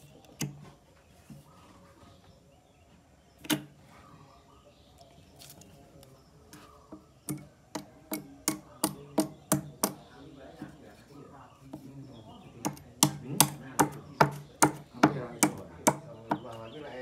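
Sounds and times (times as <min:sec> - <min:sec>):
hammer striking wood: 0:07.3 - 0:10.1, 0:12.6 - 0:16.6.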